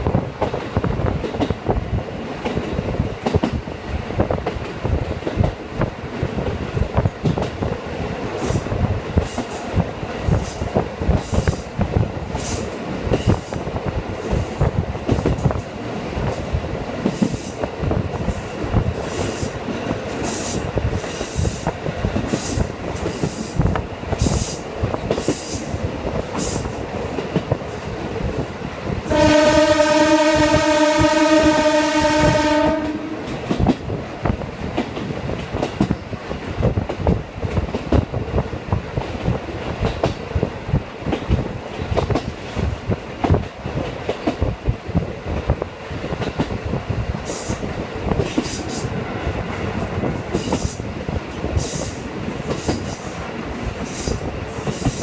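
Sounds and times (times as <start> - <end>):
rail-joint clicks: 0.0 - 29.1, 33.2 - 55.0
railcar engine and wheels: 0.0 - 55.0
train horn blast: 29.1 - 33.3.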